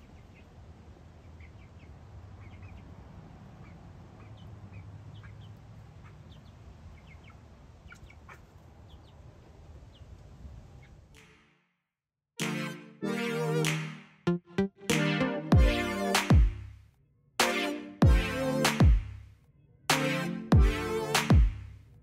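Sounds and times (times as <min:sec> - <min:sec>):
hens clucking and chirping: 0:03.6 - 0:09.2.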